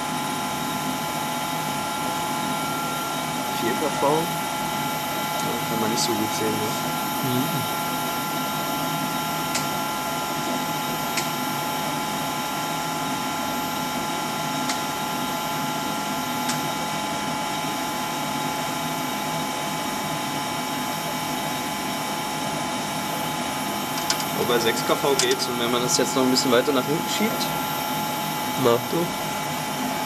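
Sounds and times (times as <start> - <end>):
machine whirring: 0.0 - 9.8, 23.9 - 30.0.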